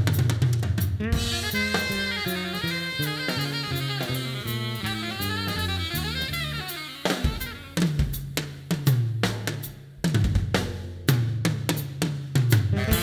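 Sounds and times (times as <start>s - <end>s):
bass notes: 0.0s - 13.0s
drum kit break: 0.0s - 13.0s
saxophone melody: 1.0s - 8.3s, 12.7s - 13.0s.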